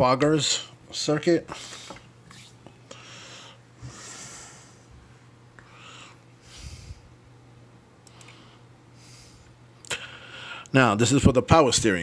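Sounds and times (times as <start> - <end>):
low steady hum: 0.0 - 12.0
person breathing: 2.8 - 4.9, 5.6 - 7.1, 8.1 - 10.7.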